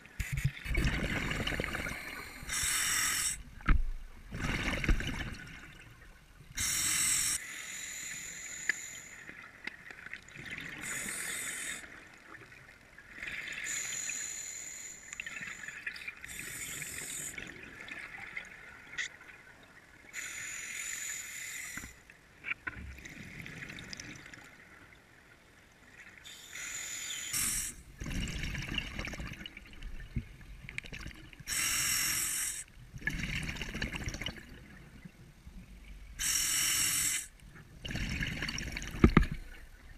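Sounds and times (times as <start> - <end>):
bubbles rushing underwater: 0.7 - 2.0
diver breathing through regulator: 1.9 - 3.4, 6.6 - 9.3, 10.8 - 11.9, 13.6 - 17.4, 20.2 - 22.0, 26.3 - 27.8, 31.5 - 32.7, 36.2 - 37.3.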